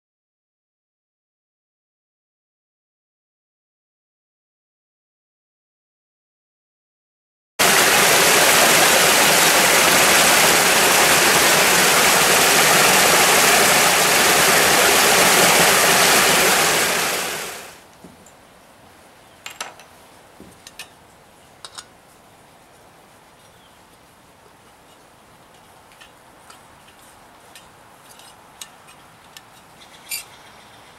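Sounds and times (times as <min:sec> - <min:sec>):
creek rushing over stones: 0:07.6 - 0:17.8.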